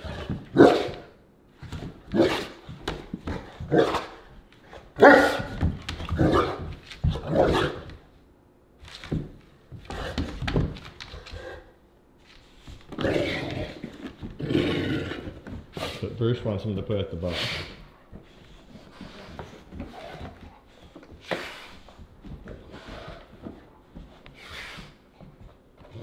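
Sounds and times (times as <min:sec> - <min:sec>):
dogs barking: 0:00.5 - 0:01.1, 0:05.0 - 0:05.6.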